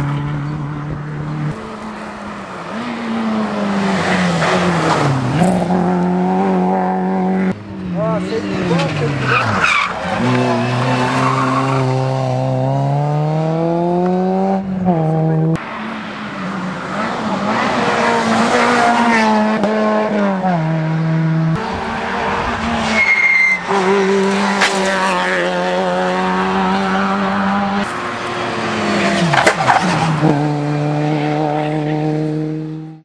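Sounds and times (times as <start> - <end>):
rally car engines revving: 0.0 - 33.0
tyre squeal: 22.8 - 23.9.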